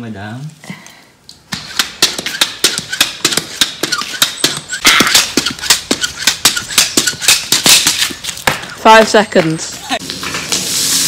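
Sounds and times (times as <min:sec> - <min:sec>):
hockey stick clacking ball on paving: 0:01.5 - 0:09.7.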